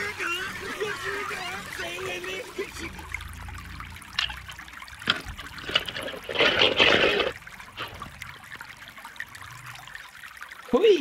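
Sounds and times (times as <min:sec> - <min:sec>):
water trickling: 0:00.0 - 0:11.0
wet clattering and splashing: 0:04.0 - 0:08.4.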